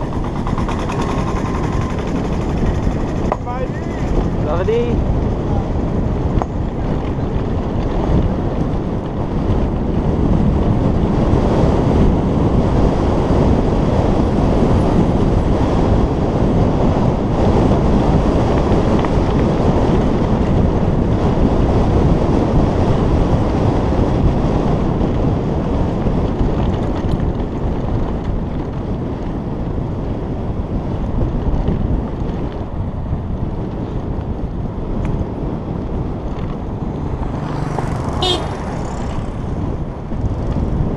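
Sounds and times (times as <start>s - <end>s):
tyres rumbling on gravel: 0.0s - 9.8s, 33.4s - 40.9s
wind buffeting microphone: 0.0s - 40.9s.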